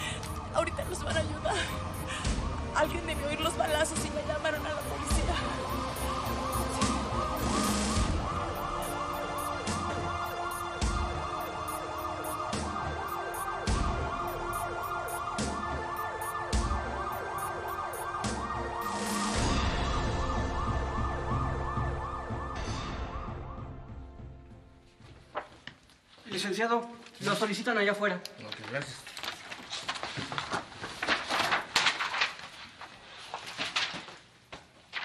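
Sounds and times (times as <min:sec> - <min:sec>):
police car siren wailing: 0:00.0 - 0:23.8.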